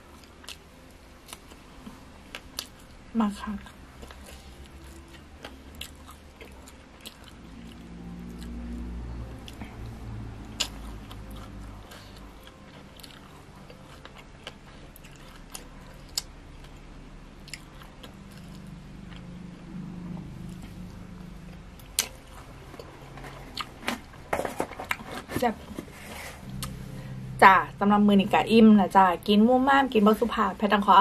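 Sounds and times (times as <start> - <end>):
person chewing and biting: 0.2 - 0.6, 2.3 - 2.9, 4.0 - 8.6, 10.4 - 19.3, 21.8 - 25.3.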